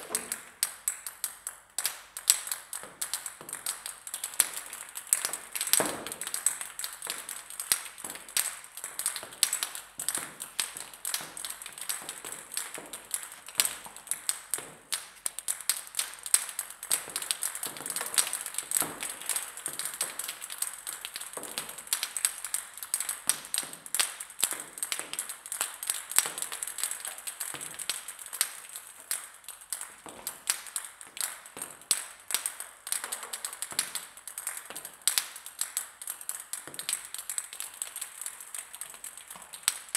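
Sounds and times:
table tennis balls bouncing on floor: 5.1 - 15.6, 16.9 - 20.3.

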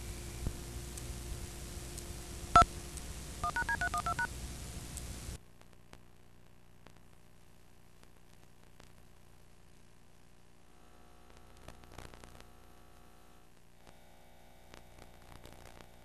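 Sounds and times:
tape playback hiss and hum: 0.0 - 16.0
short beep: 3.4 - 4.3
touch-tone dialing beeps: 3.4 - 4.3.

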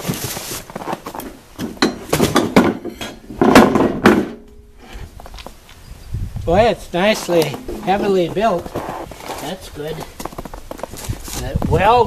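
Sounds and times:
cardboard rustling and scraping: 0.0 - 1.4, 7.1 - 11.8
metal clanks and knocks: 1.6 - 4.7, 7.4 - 8.5.

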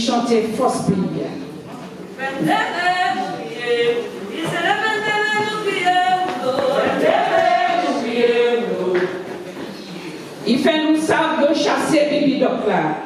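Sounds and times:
woman singing unaccompanied: 2.2 - 9.0.

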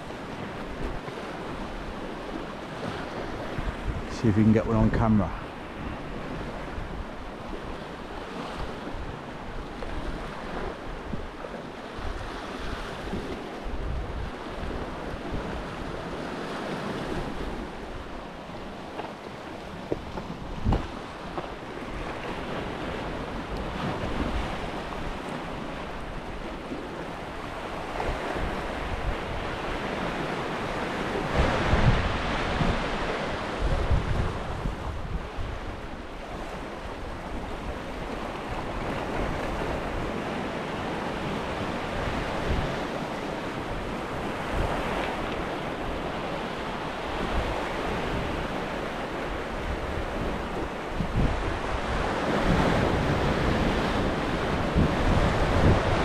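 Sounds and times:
wind buffeting microphone: 0.0 - 18.8, 19.6 - 56.0.

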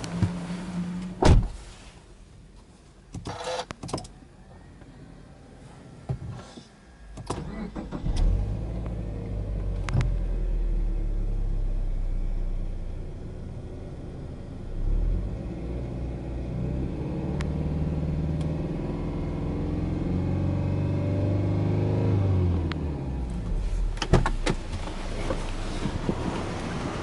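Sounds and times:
car engine revving: 7.3 - 27.0.

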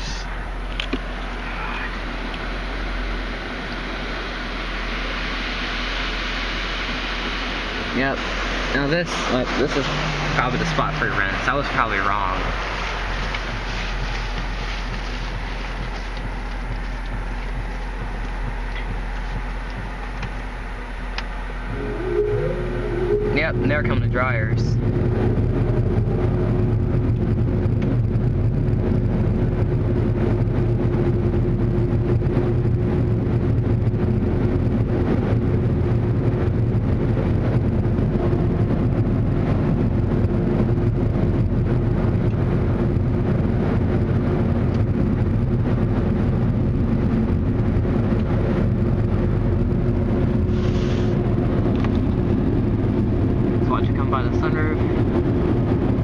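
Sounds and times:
blower dryers rushing air: 0.0 - 56.0
constant hum: 0.0 - 56.0.

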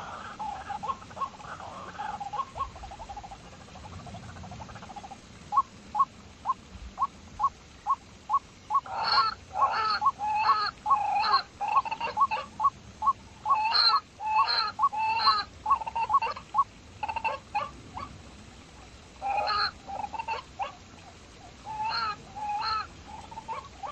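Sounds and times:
harsh animal calls: 8.8 - 12.7, 21.6 - 23.9.

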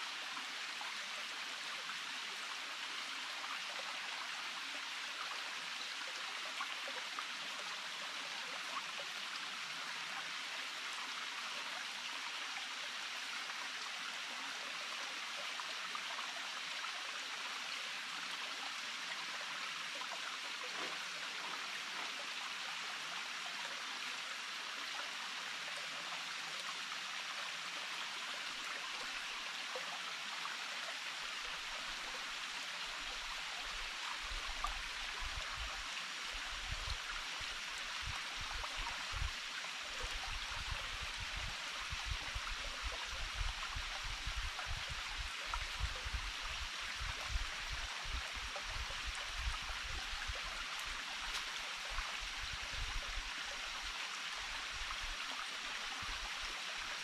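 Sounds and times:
stream running: 0.0 - 57.0.

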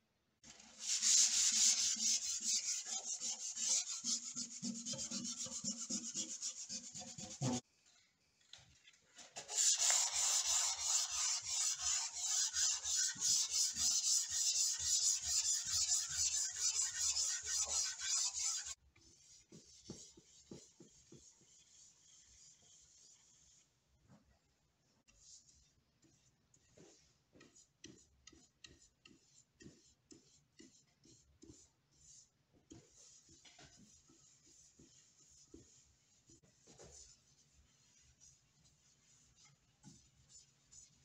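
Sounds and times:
sandpaper rubbing on wood: 0.8 - 7.6, 9.6 - 18.8.

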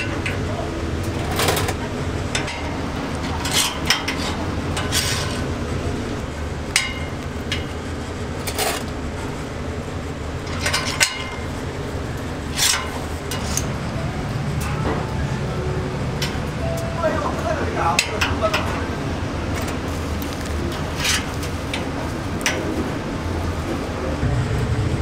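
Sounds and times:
steady low rumble: 0.0 - 25.0
steel spits clinking on metal: 12.5 - 13.7.

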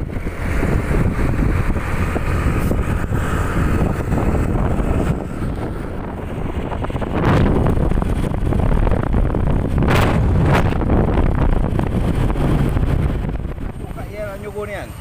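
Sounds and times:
wind rushing over microphone: 0.0 - 14.8
motorcycle engine running: 0.0 - 15.0.

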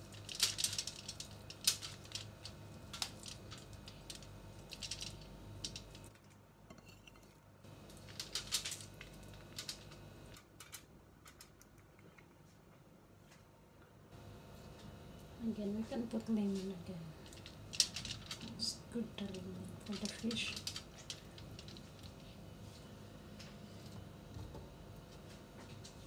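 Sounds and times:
aluminium foil crinkling: 0.0 - 6.3, 7.7 - 11.5, 15.2 - 24.2.

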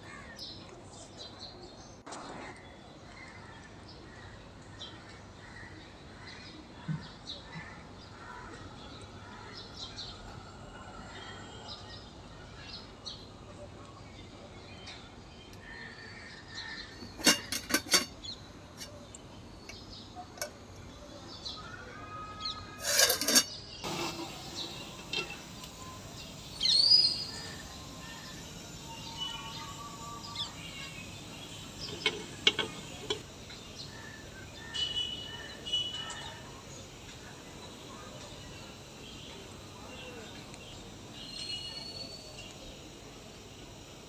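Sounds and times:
birds chirping: 22.5 - 44.0.

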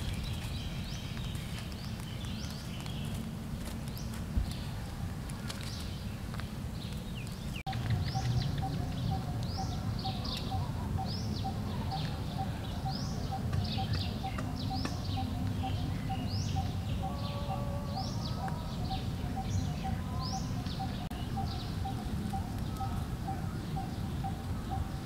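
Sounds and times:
downward-sweeping bird calls: 7.1 - 25.0.

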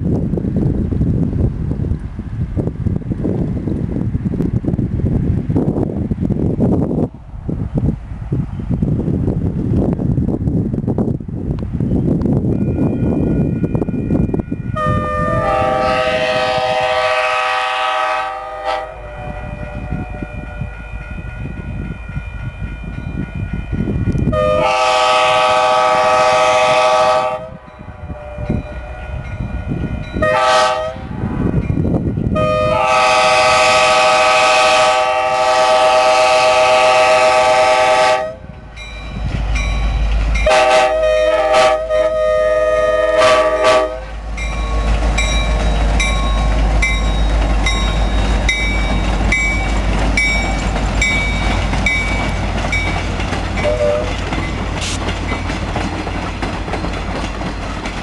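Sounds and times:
diesel locomotive engine rumbling: 0.0 - 58.0
locomotive air horn blasts: 14.8 - 21.2, 24.3 - 31.2, 32.4 - 38.5, 40.4 - 44.2, 53.6 - 54.2.

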